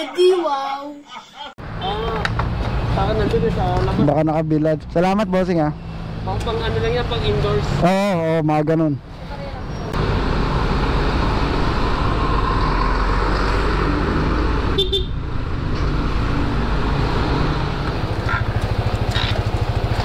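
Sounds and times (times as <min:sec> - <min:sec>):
road and wind noise: 0:01.6 - 0:20.0
horn toot: 0:14.8 - 0:15.2
scooter engine running: 0:17.8 - 0:20.0.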